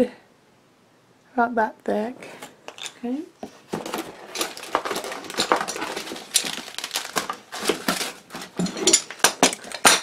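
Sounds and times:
plastic packaging crinkling: 0:03.7 - 0:10.0.

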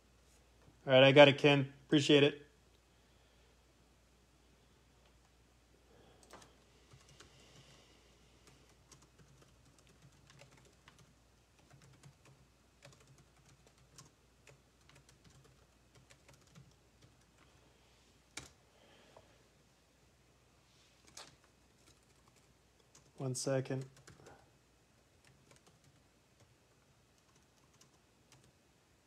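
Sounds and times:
typing on a computer keyboard: 0:06.2 - 0:07.8, 0:08.4 - 0:17.5, 0:18.4 - 0:18.6, 0:21.0 - 0:23.2, 0:23.8 - 0:24.4, 0:25.1 - 0:28.6.

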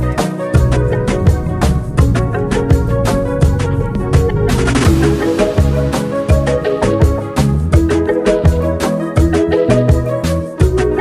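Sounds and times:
low drum hits: 0:00.6 - 0:08.1.

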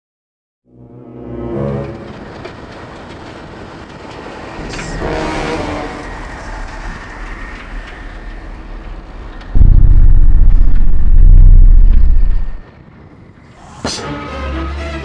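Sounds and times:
heavy vehicle noise: 0:00.7 - 0:13.4
pulsing low rumble: 0:04.6 - 0:12.7.

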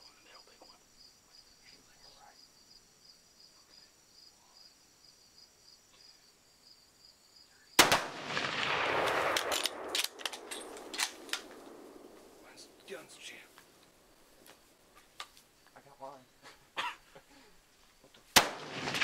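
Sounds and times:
insects chirping: 0:00.0 - 0:19.0
gunshots: 0:07.8 - 0:13.3, 0:18.3 - 0:19.0.

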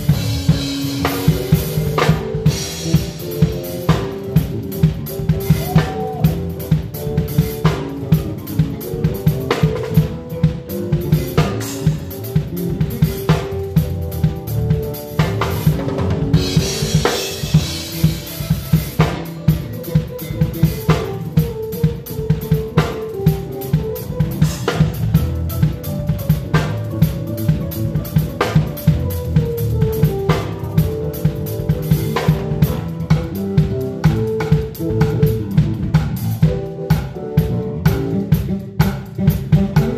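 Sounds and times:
live band playing gospel: 0:00.0 - 0:39.9.

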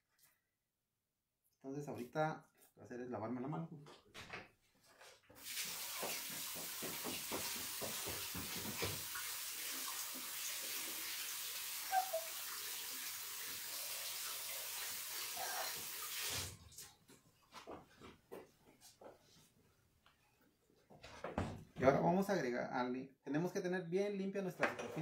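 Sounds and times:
hands washing with splashing: 0:05.4 - 0:17.0
tap water running: 0:05.4 - 0:17.0.

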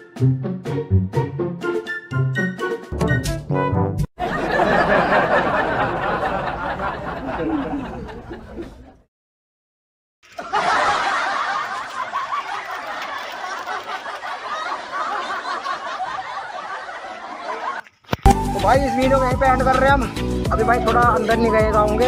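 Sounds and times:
laughter sound effect: 0:04.2 - 0:08.8, 0:10.3 - 0:17.8.

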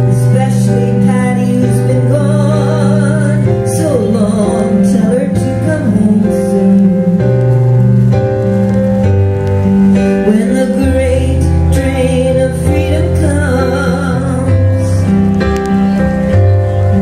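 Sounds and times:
woman singing: 0:00.0 - 0:07.8, 0:10.0 - 0:15.2
keyboard chords: 0:00.0 - 0:17.0.

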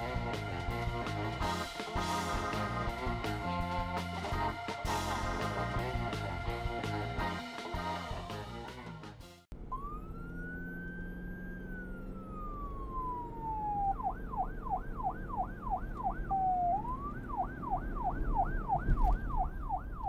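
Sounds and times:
police siren wailing and yelping: 0:09.6 - 0:20.0.

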